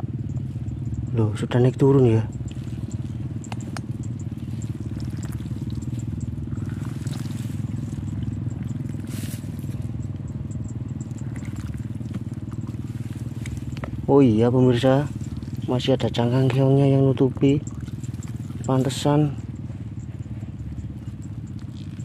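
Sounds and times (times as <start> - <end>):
small engine running: 0.0 - 22.0
hand squelching in wet mud: 2.5 - 10.0, 11.0 - 14.0.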